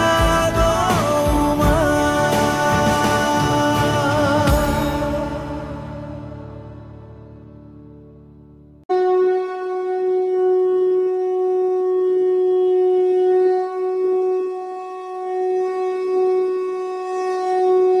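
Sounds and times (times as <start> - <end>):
conch shell blown: 8.9 - 18.0.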